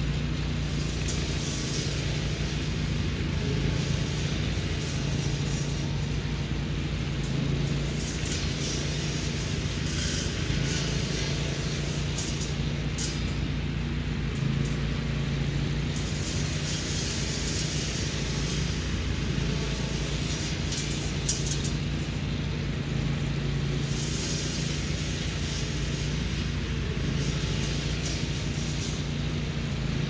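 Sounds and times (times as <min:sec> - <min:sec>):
engine running steadily: 0:00.0 - 0:30.0.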